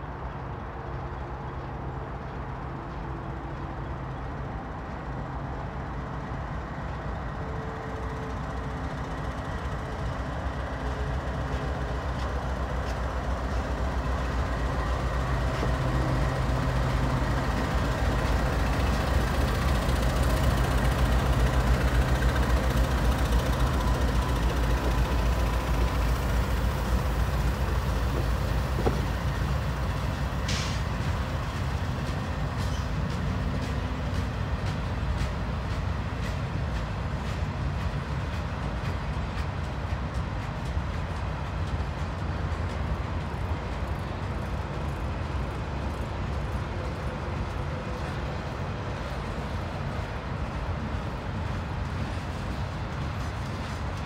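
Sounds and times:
diesel locomotive engines droning: 0.0 - 54.0
freight cars passing: 0.0 - 54.0.

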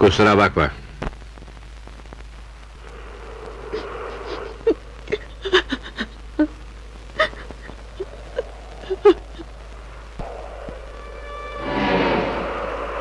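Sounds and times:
woman sobbing: 3.7 - 9.8.

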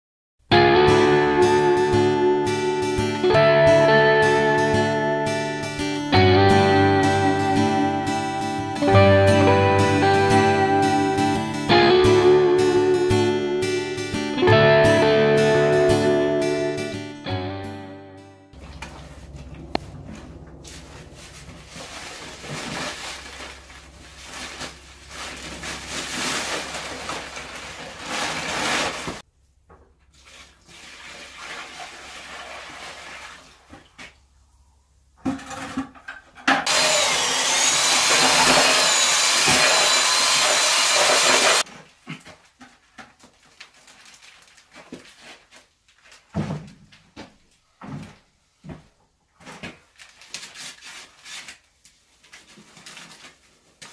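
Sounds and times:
water pouring into tub: 25.2 - 29.2, 30.1 - 33.8.

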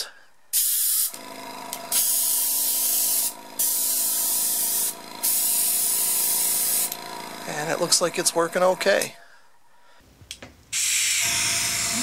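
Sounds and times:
airbrush spraying hissing bursts: 0.5 - 1.1, 1.9 - 7.0
compressor humming: 1.0 - 12.0.

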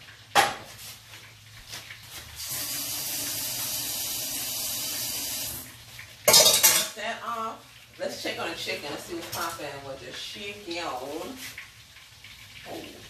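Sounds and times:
faucet water running into sink: 0.8 - 13.0.

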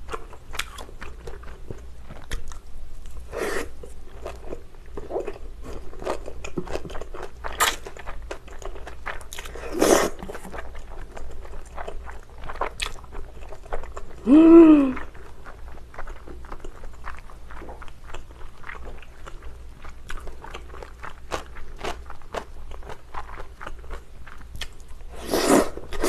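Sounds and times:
wet chewing and mouth smacks: 15.2 - 25.0.

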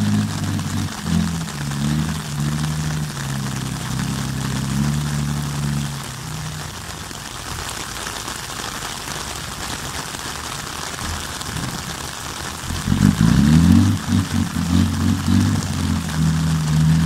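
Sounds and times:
diesel truck engine running: 0.0 - 7.3, 12.6 - 17.0
steady hiss: 0.0 - 17.0.

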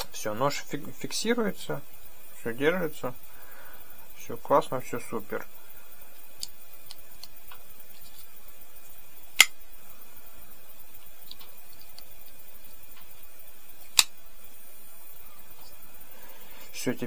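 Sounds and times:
folding knife blade clicking: 13.9 - 14.1.

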